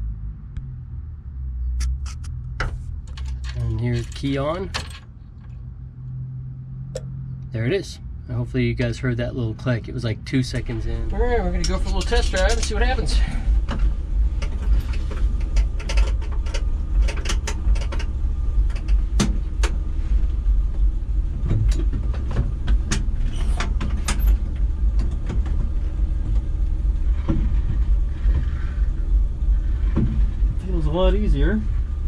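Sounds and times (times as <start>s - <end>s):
car engine idling: 6.7s - 32.0s
clicks and knocks in cab: 13.6s - 19.8s, 21.4s - 29.0s.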